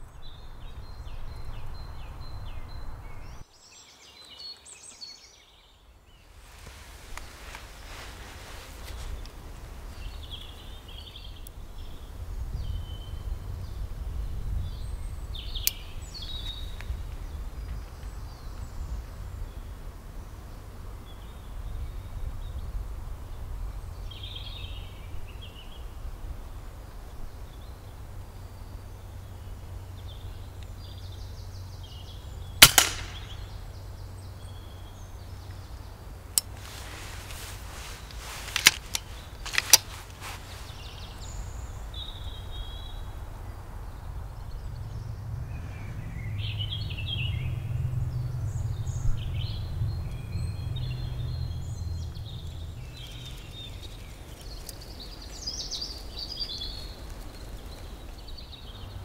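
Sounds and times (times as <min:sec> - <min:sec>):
air rifle shot crack: 0:32.6 - 0:33.6
light clicks and snaps: 0:36.4 - 0:40.2.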